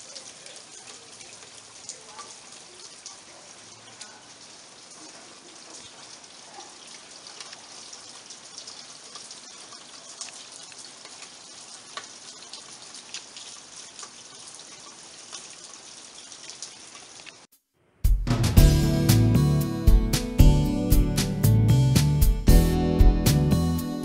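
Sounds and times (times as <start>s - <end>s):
steady rain falling: 0.0s - 17.5s
drops and drips ticking: 0.0s - 17.6s.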